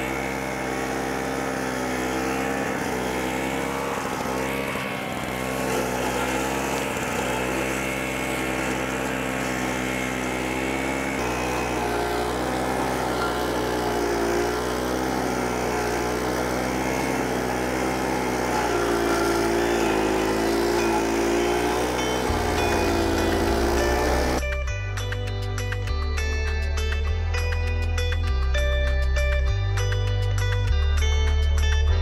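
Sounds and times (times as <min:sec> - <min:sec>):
mower engine running under load: 0:00.0 - 0:24.6.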